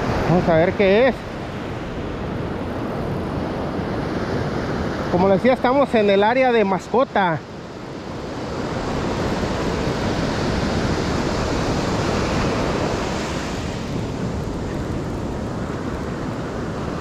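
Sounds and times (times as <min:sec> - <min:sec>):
ocean surf breaking: 0:00.0 - 0:17.0
wind on microphone: 0:07.6 - 0:17.0.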